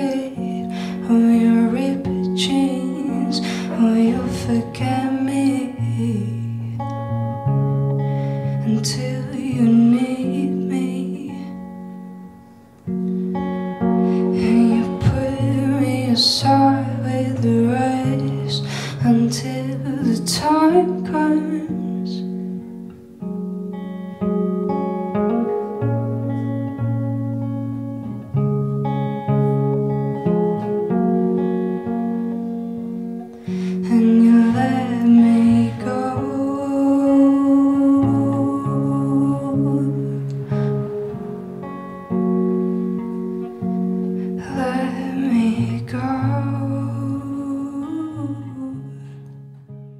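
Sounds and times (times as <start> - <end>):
person singing: 0.0 - 7.6, 8.4 - 11.8, 13.9 - 22.5, 30.3 - 49.6
acoustic guitar chords: 0.0 - 49.9.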